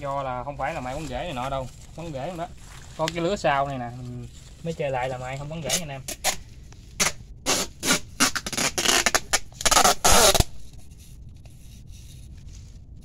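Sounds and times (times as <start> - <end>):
packing tape pulled off roll: 5.7 - 6.4, 7.0 - 10.7.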